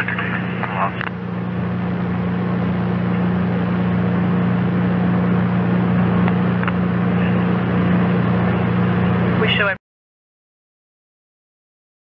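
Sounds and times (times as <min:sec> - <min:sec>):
low electrical hum: 0:00.0 - 0:09.8.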